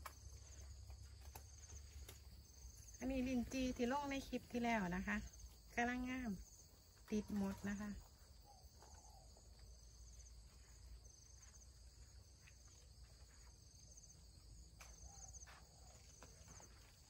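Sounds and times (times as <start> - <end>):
insect chirping: 0.0 - 17.0.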